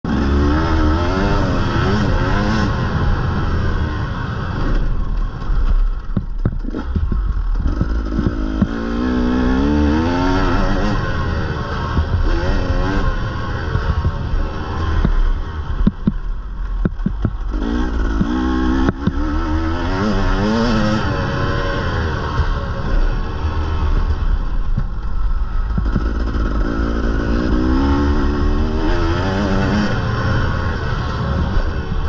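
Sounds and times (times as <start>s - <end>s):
dirt bike engine revving: 0.1s - 16.3s, 16.9s - 32.0s
bike clattering over bumps: 4.7s - 9.0s, 13.6s - 19.2s.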